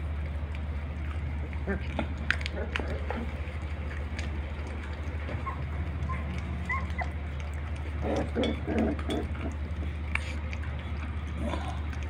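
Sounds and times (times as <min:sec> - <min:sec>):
steady low hum: 0:00.0 - 0:12.0
puppies whimpering: 0:04.6 - 0:11.3.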